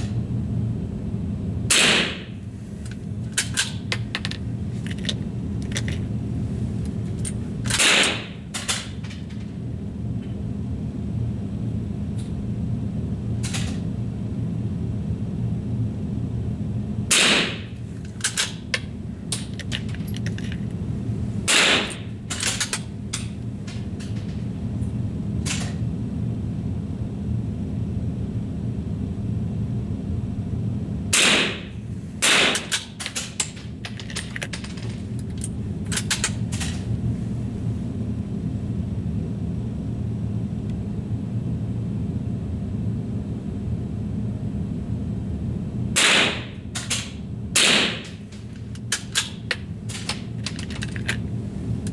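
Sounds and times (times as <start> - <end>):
steady low hum: 0.0 - 51.9
rifle shots: 1.7 - 2.2, 7.8 - 8.3, 17.1 - 17.6, 21.5 - 22.0, 31.2 - 31.6, 32.2 - 32.7, 46.0 - 46.5, 47.6 - 48.1.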